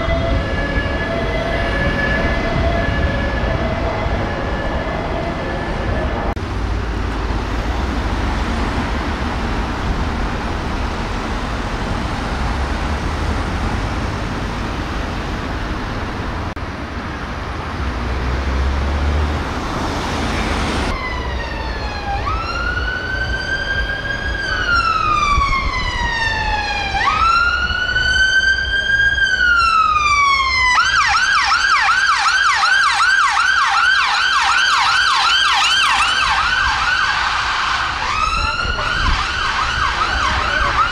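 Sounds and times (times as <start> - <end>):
ambulance siren wailing and yelping: 0.0 - 6.4, 20.4 - 40.9
traffic noise: 0.0 - 40.9.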